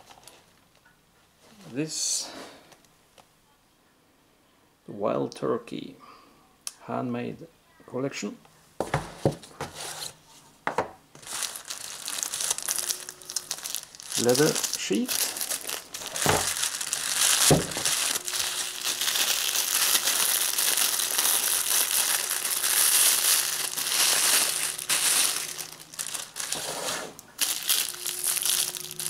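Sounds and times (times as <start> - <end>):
plastic wrapping crinkling: 11.1 - 29.0.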